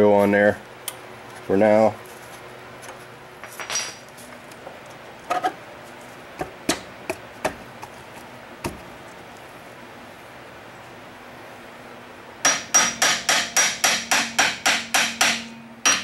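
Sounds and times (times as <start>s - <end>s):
metal knocks and clinks: 3.4s - 4.1s.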